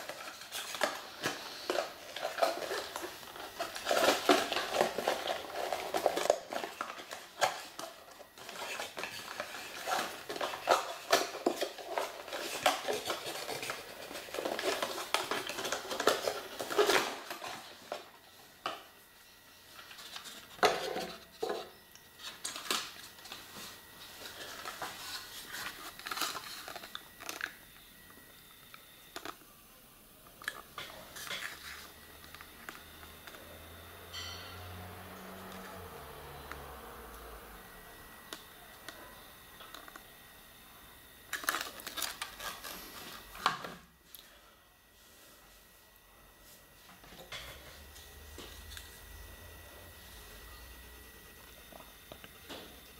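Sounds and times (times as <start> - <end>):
plastic parts clicking and clattering: 0.0 - 18.8, 24.2 - 27.6, 41.3 - 43.8
plastic packaging rustling: 0.0 - 40.1, 41.2 - 44.3.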